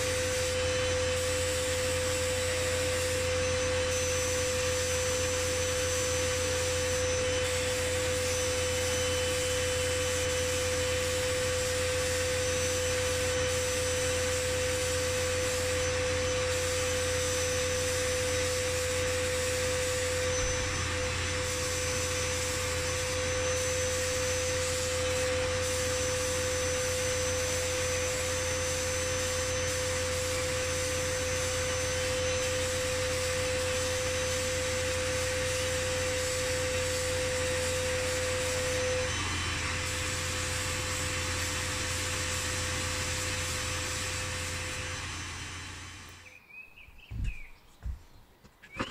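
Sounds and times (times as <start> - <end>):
blast gun hissing grit on metal: 0.0 - 38.8
constant steady hum: 0.0 - 48.9.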